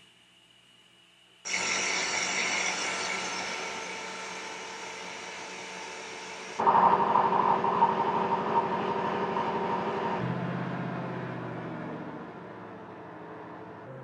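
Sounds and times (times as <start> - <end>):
high whine: 1.5 - 14.0
crane diesel engine running: 6.6 - 14.0.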